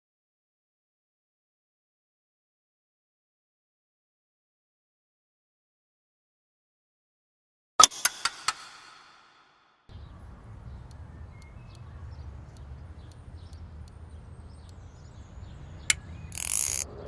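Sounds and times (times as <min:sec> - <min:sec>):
sharp click: 0:07.8 - 0:09.5, 0:15.8 - 0:16.9
small ticks: 0:09.9 - 0:16.9
bird chirps: 0:09.9 - 0:17.0.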